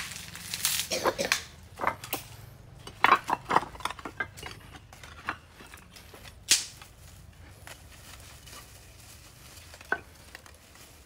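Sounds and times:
hard objects clinking and knocking: 1.7 - 6.8, 9.7 - 10.5.

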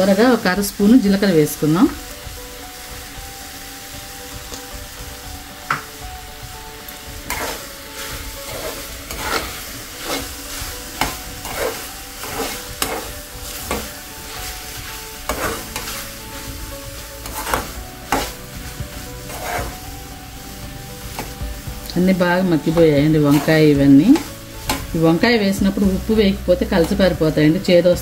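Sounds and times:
vegetables sizzling in oil: 0.0 - 28.0
spoon scraping a pan: 7.2 - 27.2.

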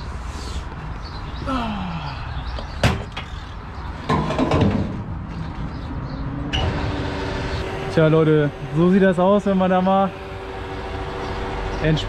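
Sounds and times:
steady low hum: 6.5 - 12.0.

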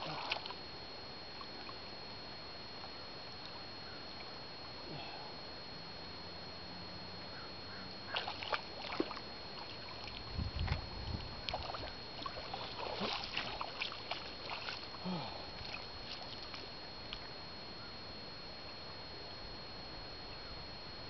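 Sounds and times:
splashing in wet sand and water: 0.0 - 0.5, 8.1 - 16.7.

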